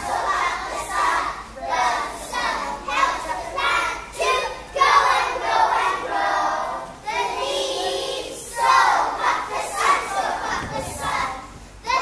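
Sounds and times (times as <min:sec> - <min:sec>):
children singing in unison: 0:00.0 - 0:12.0.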